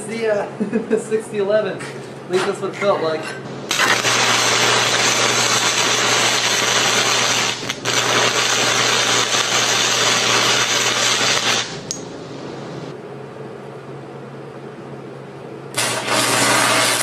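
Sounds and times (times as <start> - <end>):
welding arc crackling hiss: 3.6 - 12.9, 15.7 - 17.0.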